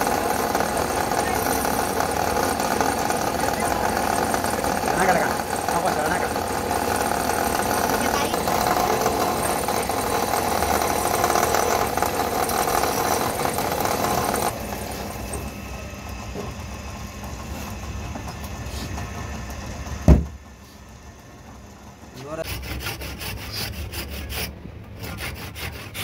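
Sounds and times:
chisel scraping spinning wood: 0.0s - 15.6s, 22.2s - 26.0s
wood lathe motor running: 0.0s - 26.0s
loud thump: 20.0s - 20.4s.

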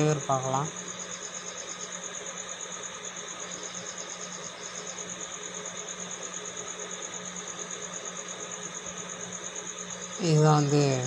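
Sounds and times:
small motor humming with pulsing whine: 0.0s - 11.0s.

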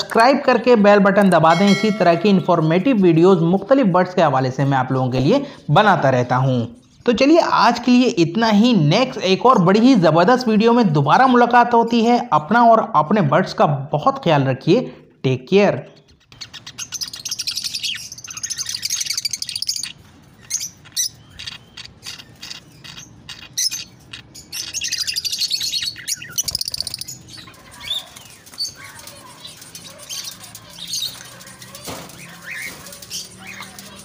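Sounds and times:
parrots chattering and chirping: 15.9s - 34.0s.

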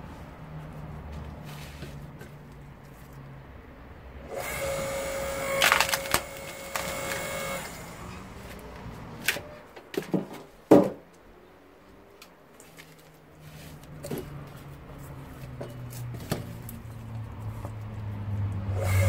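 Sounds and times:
log splitter motor hum: 4.3s - 8.3s, 18.5s - 19.0s
wood creaking and cracking: 5.4s - 7.7s
split wood pieces knocking: 5.6s - 7.4s.

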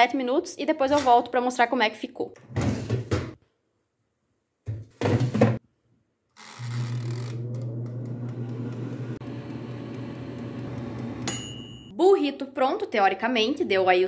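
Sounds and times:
air fryer fan humming: 6.6s - 11.9s.

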